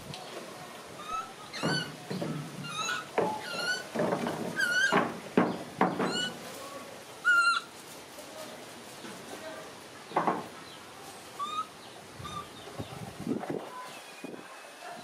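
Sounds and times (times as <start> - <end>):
baby monkey squeaking: 1.0 - 2.0, 2.6 - 3.9, 4.6 - 5.0, 6.1 - 6.4, 7.2 - 7.7, 11.4 - 12.6.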